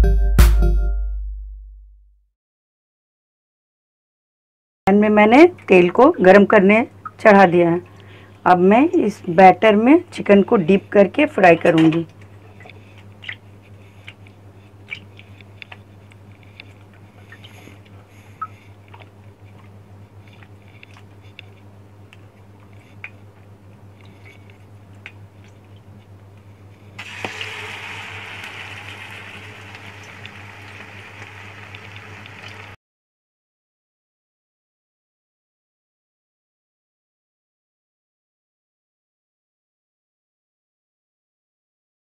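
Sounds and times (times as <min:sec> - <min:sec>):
wet squelches of batter: 0:11.6 - 0:26.1
deep-frying sizzle: 0:27.0 - 0:32.8.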